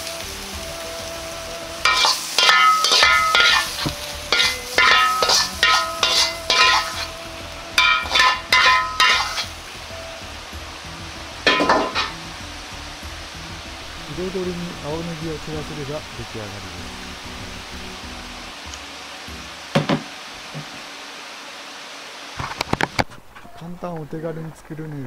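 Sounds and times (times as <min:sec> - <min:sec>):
metal utensil scraping a wok: 0:01.8 - 0:07.2, 0:07.8 - 0:09.6, 0:11.5 - 0:12.3.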